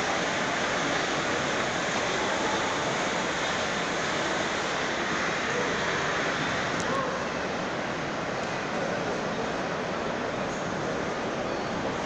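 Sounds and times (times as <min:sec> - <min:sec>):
miniature train rolling on track: 0:00.0 - 0:12.0.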